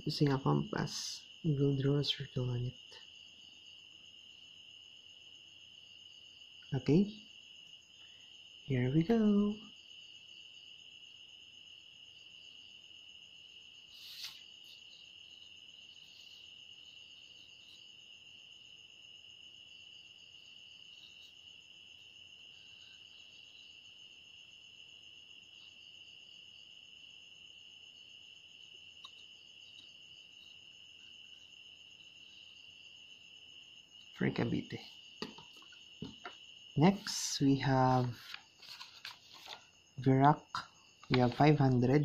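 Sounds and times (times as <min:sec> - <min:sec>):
crickets trilling: 0:00.0 - 0:42.0
short scrape or rustle: 0:13.9 - 0:14.5.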